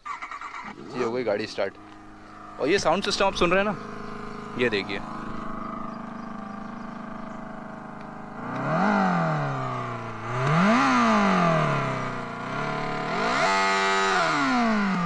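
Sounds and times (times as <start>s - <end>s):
synthetic motorcycle engine revving: 0.0s - 15.0s.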